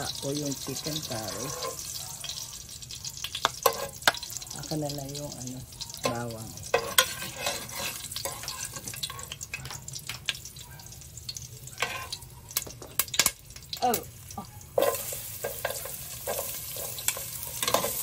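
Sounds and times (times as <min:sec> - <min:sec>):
onions sizzling in oil: 0:00.0 - 0:18.0
ladle scraping a pot: 0:01.0 - 0:01.8, 0:03.6 - 0:04.2, 0:06.0 - 0:09.4, 0:11.8 - 0:12.2.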